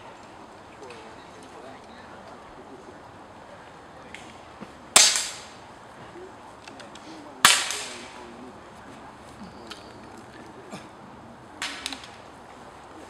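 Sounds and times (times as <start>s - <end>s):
air rifle shots: 5.0s - 5.6s, 7.4s - 8.2s.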